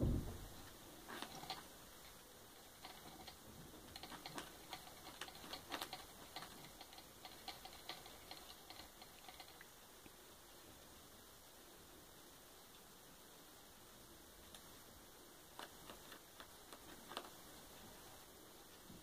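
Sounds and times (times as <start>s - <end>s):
guinea pigs chewing leaves: 0.1s - 19.0s.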